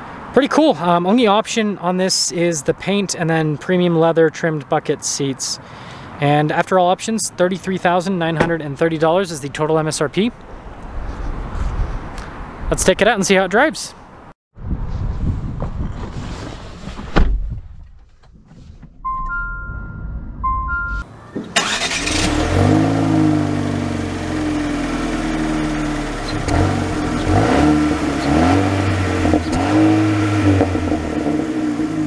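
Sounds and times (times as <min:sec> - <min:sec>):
car door shutting: 0:08.4 - 0:08.6
two-note dashboard chime: 0:19.0 - 0:21.1.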